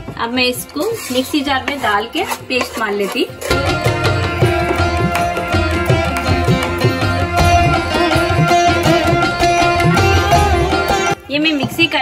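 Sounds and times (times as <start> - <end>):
plucked string melody: 3.4 - 11.2.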